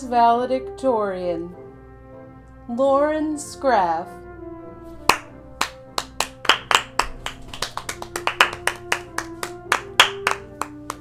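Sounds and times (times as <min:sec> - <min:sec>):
background music with held notes: 0:00.0 - 0:11.0
hands clapping: 0:05.0 - 0:11.0.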